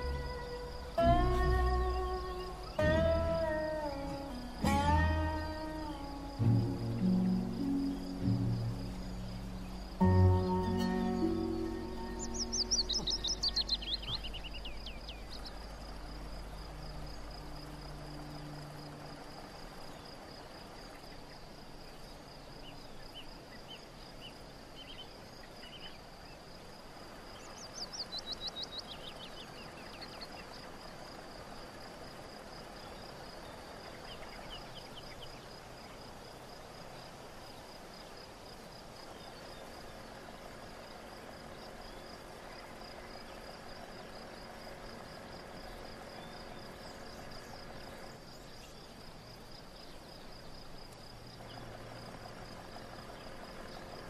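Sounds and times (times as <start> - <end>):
bird descending trill: 0.0 - 15.2
crickets chirring: 0.0 - 54.0.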